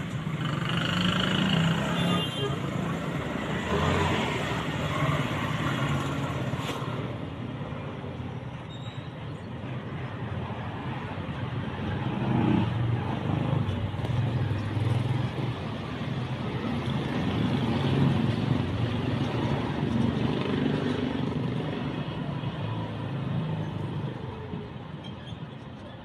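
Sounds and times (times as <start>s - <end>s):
motorcycles passing: 0.0s - 7.1s
trucks passing: 0.0s - 8.7s
road traffic rumble: 0.0s - 26.0s.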